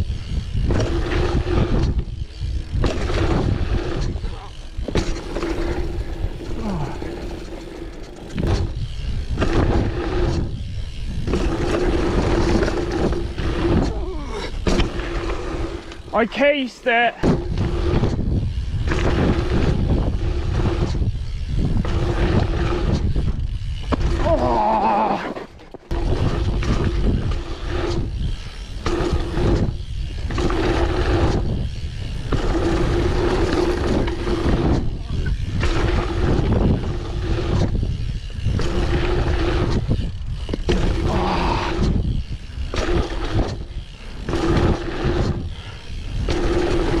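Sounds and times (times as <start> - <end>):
wind rumble: 0.0 - 16.6, 17.2 - 25.3, 25.9 - 47.0
bike tyres on dirt: 0.0 - 47.0.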